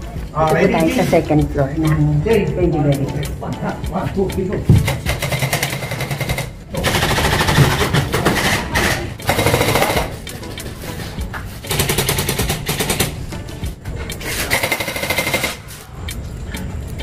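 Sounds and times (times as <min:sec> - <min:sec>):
airsoft guns firing in bursts: 0:14.5 - 0:15.6.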